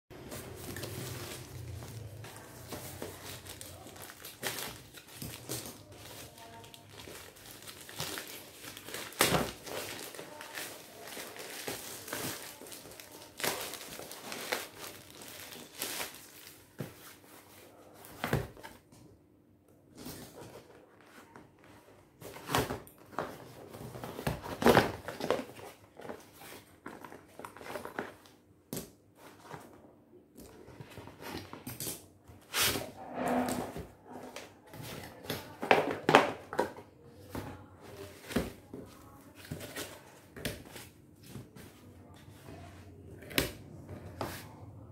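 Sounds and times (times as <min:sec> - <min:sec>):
plastic bag crinkling: 0:00.2 - 0:16.7.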